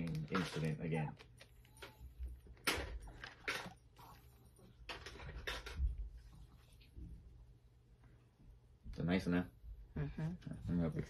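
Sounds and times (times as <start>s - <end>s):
plastic bag crinkling: 0.0s - 4.2s.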